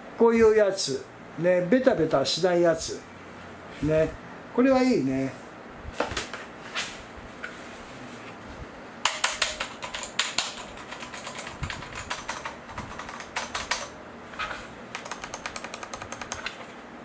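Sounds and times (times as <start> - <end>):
mechanical keyboard key clacks: 9.1 - 13.9, 14.9 - 16.5.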